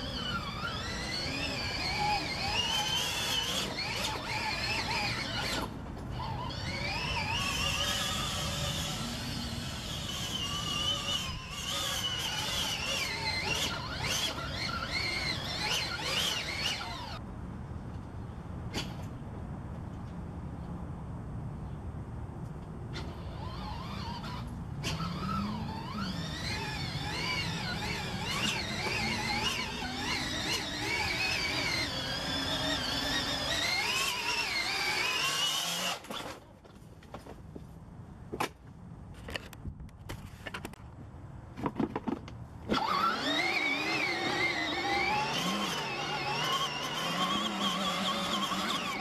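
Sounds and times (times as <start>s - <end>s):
electric toy tractor whine: 0.0s - 17.2s, 22.9s - 36.4s, 42.6s - 49.0s.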